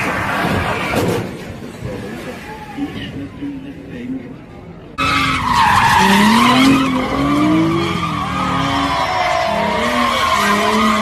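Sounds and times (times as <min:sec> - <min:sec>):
car engine revving: 0:05.0 - 0:11.0.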